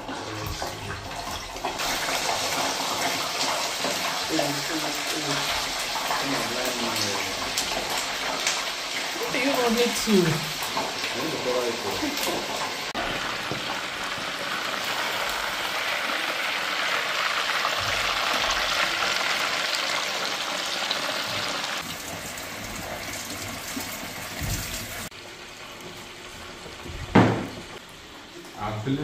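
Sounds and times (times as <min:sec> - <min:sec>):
fish frying in hot oil: 0:00.0 - 0:29.0
running kitchen tap: 0:00.0 - 0:29.0
knock: 0:27.1 - 0:27.8.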